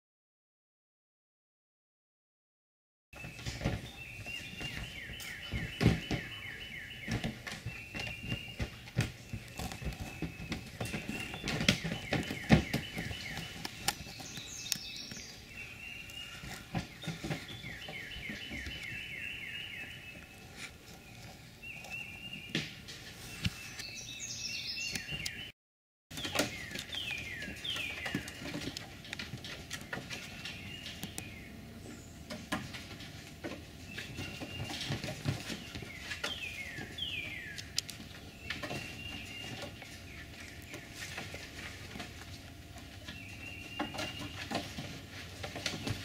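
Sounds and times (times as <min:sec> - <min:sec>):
sharp knocks and rattles: 0:03.2 - 0:14.4
bird singing descending notes: 0:09.5 - 0:20.4.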